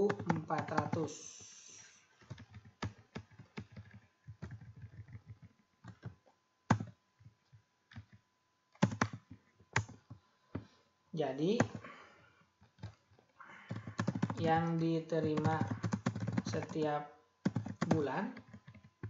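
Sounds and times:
computer keyboard typing: 0:00.0 - 0:07.0, 0:07.9 - 0:08.2, 0:08.8 - 0:10.1, 0:11.6 - 0:11.9, 0:13.6 - 0:16.8, 0:17.4 - 0:19.0.

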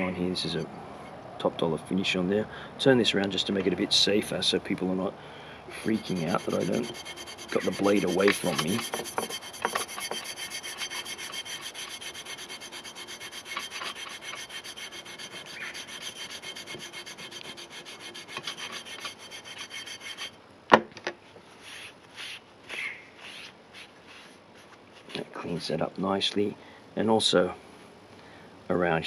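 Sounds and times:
rubber eraser scrubbing steel blade: 0:05.8 - 0:20.3.

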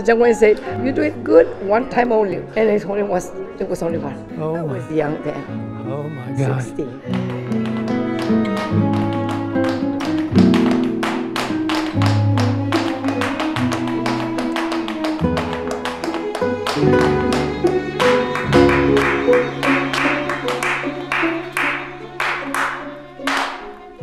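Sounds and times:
flamenco guitar music: 0:03.8 - 0:24.0
heeled shoes tapping on floor: 0:07.1 - 0:21.8.

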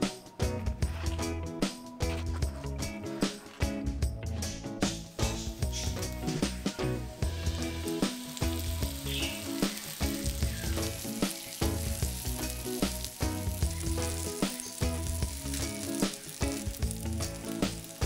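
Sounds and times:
background music: 0:00.0 - 0:18.0
dough frying in oil: 0:07.2 - 0:18.0.

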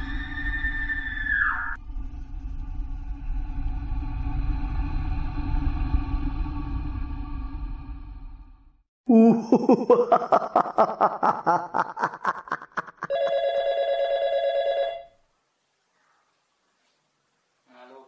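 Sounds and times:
electronic telephone ringing: 0:13.1 - 0:15.2.

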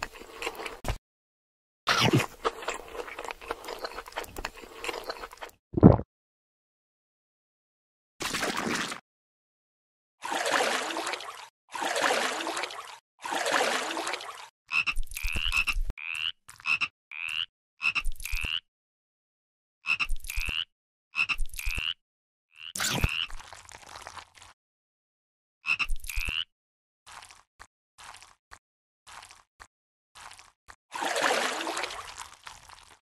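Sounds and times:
frog croaks: 0:14.7 - 0:18.6.

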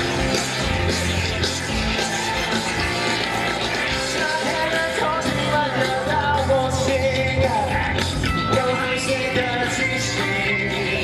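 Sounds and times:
live rock band: 0:00.0 - 0:11.0
man singing: 0:03.9 - 0:11.0.

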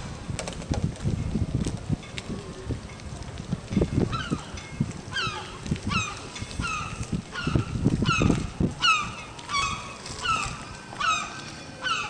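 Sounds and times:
gull begging call: 0:05.1 - 0:12.0.

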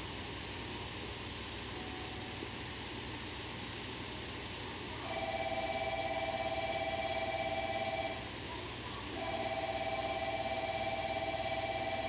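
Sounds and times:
alarm bell ringing: 0:05.2 - 0:08.2, 0:09.2 - 0:12.0.

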